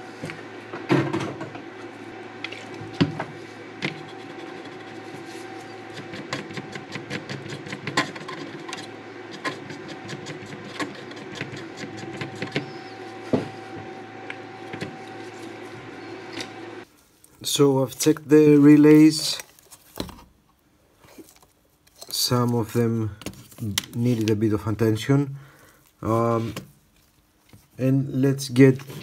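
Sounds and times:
steady low hum: 0.0s - 19.6s.

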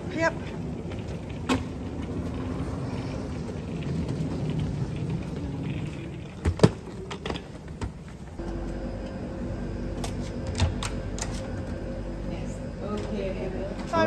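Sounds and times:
suitcase wheels rolling on paving: 0.0s - 8.6s
low hum: 8.4s - 14.0s.

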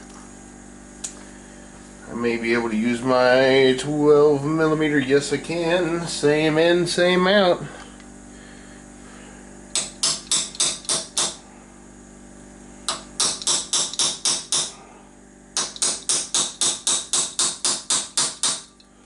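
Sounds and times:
hammer tapping on metal socket: 12.9s - 14.7s.

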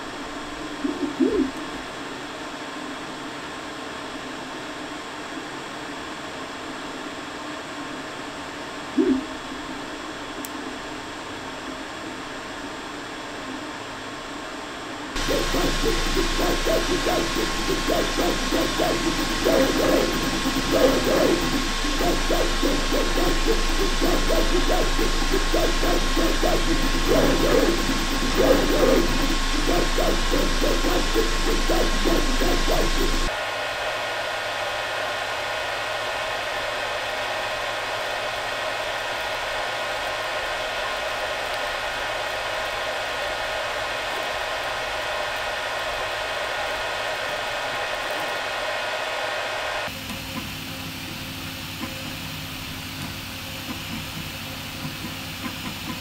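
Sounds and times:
printer fan whir: 14.3s - 56.0s
fan hiss: 15.1s - 56.0s
printer motion warbling tones: 15.2s - 33.3s.

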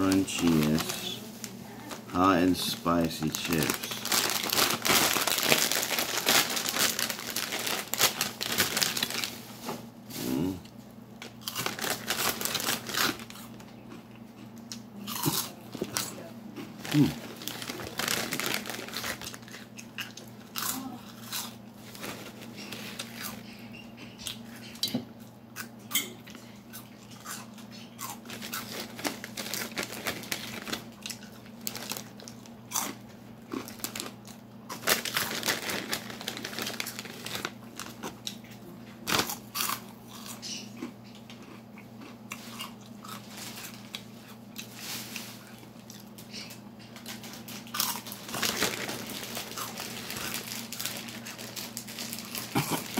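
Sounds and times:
crunching and chewing snacks: 0.0s - 9.4s, 10.2s - 52.9s
plastic bag crinkling: 0.0s - 9.6s, 11.2s - 13.7s, 15.7s - 23.4s, 28.1s - 38.4s, 39.0s - 39.8s, 42.4s - 46.3s, 46.9s - 52.9s
steady low hum: 0.0s - 52.9s.

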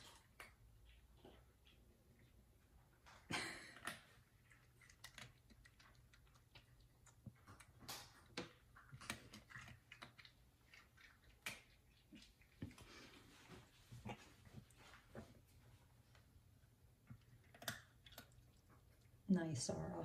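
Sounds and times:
cat crunching dry kibble: 3.7s - 13.3s, 17.1s - 19.2s.

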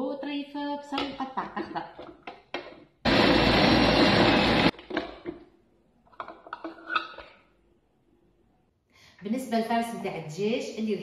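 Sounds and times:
food processor motor: 3.1s - 4.8s.

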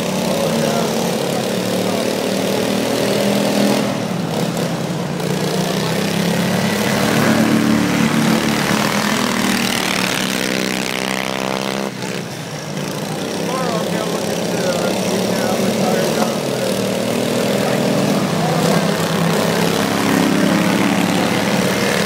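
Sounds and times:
lawn mower engines racing: 0.0s - 22.0s.

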